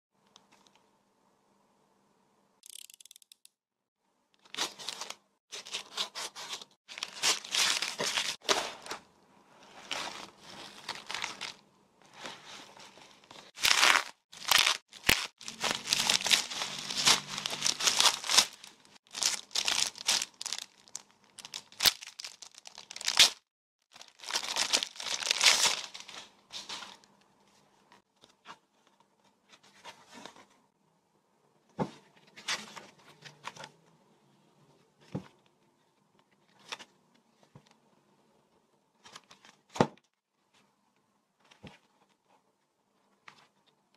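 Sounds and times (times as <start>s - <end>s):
bubble wrap handled: 4.4s - 9.0s, 9.7s - 27.1s
pages turning: 4.4s - 9.1s, 9.7s - 23.4s
scissors cutting plastic bag: 5.5s - 8.6s, 13.6s - 21.0s
plastic packaging crinkling: 6.9s - 9.0s, 9.8s - 11.6s, 13.4s - 27.0s.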